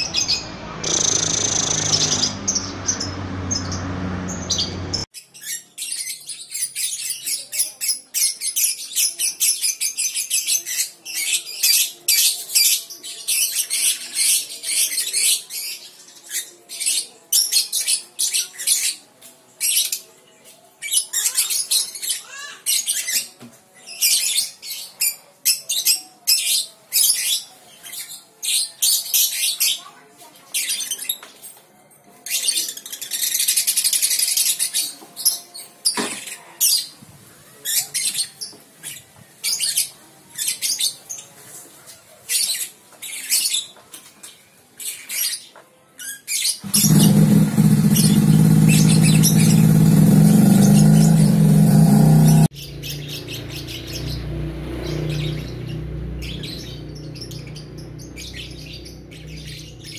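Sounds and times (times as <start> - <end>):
lovebird chattering and trilling: 0.0 - 11.3, 46.3 - 54.2.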